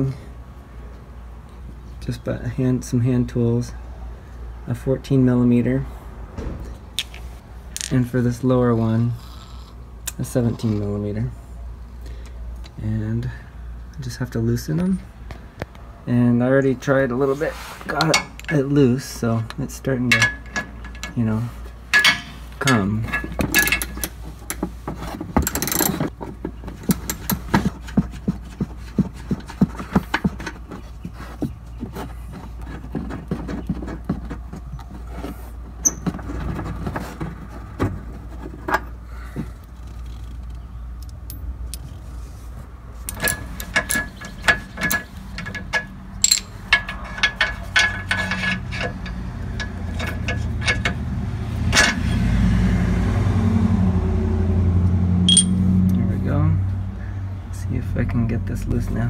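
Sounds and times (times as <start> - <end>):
metal clinks of socket and bolt: 21.9 - 24.6, 43.1 - 48.9, 55.3 - 55.6
ratchet wrench clicking: 25.4 - 26.0.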